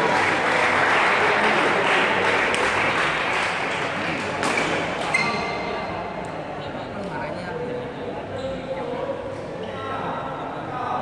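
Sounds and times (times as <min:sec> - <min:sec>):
spectators cheering and clapping: 0:00.0 - 0:04.6.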